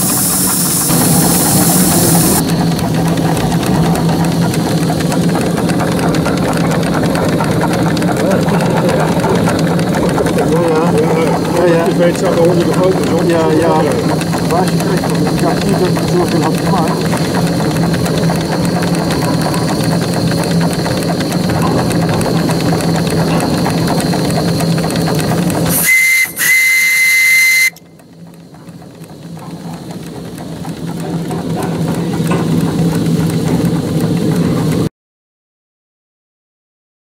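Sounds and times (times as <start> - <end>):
steam engine running: 0.0 - 34.9
steam whistle blasts: 25.7 - 27.8.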